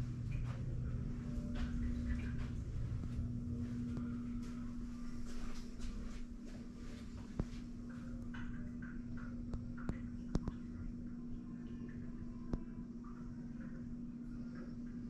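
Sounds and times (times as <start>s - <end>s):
low rumble: 0.0s - 6.5s
steady low hum: 0.0s - 15.0s.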